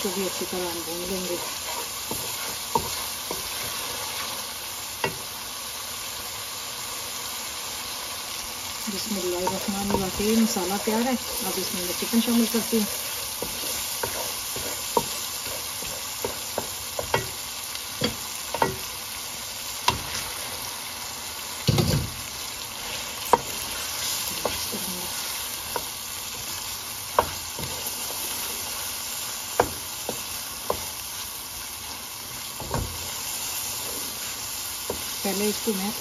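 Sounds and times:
food sizzling in a pot: 0:00.0 - 0:36.0
spatula scraping a pot: 0:00.4 - 0:04.4, 0:09.2 - 0:17.3.

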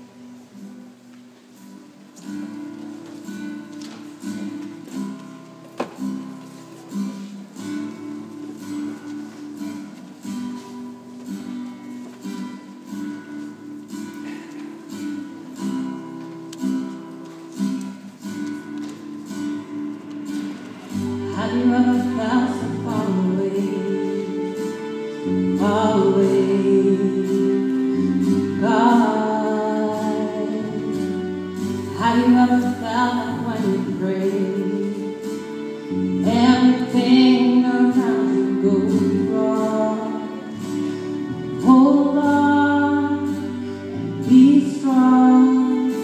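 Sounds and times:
woman singing: 0:21.2 - 0:35.3, 0:36.1 - 0:40.9, 0:41.5 - 0:46.0.

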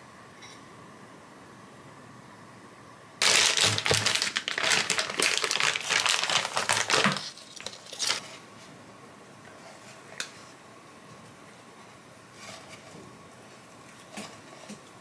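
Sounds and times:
paper packaging crinkling: 0:03.2 - 0:08.3.

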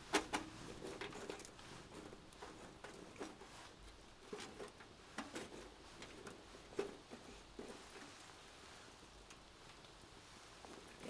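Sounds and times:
soft hiss: 0:00.0 - 0:11.0
wood fire crackling: 0:00.0 - 0:11.0.

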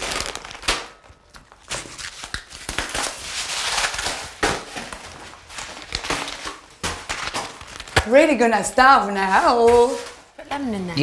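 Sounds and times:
packaging rustling and crackling: 0:00.0 - 0:08.1.

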